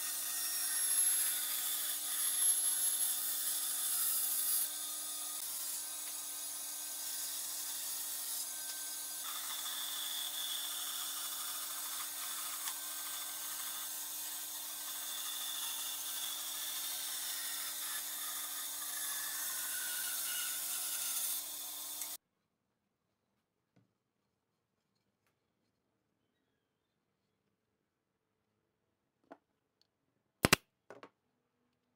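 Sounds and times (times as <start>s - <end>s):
saw blade cutting wood: 0.0s - 22.2s.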